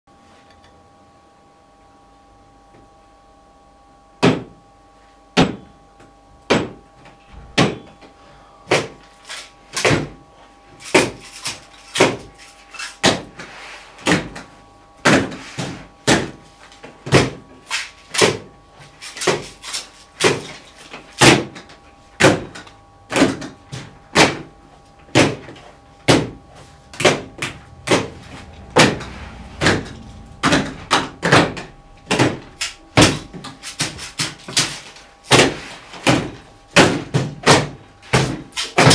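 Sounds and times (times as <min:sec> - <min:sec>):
sharp knocks and slams: 0:27.0 - 0:34.7.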